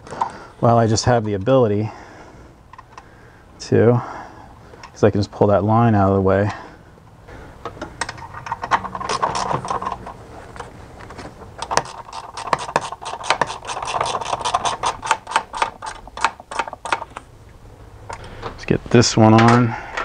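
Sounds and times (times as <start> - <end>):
small metallic clicks and rattles: 7.6 - 17.3.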